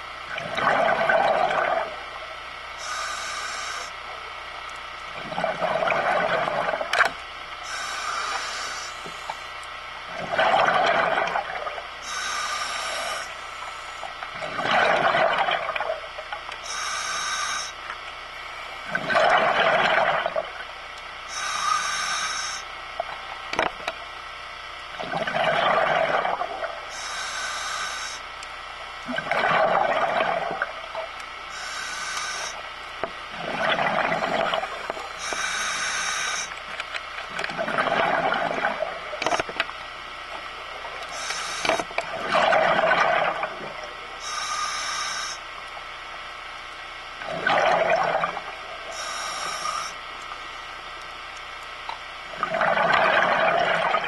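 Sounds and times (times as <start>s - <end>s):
exhaled bubbles gurgling: 0.0s - 24.1s, 24.9s - 28.2s, 28.9s - 54.0s
regulator inhalation hiss: 2.8s - 4.0s, 7.6s - 9.5s, 12.0s - 14.1s, 16.6s - 17.8s, 21.3s - 22.7s, 26.9s - 28.3s, 31.5s - 32.7s, 34.9s - 36.6s, 41.1s - 41.9s, 44.2s - 45.4s, 48.9s - 50.0s.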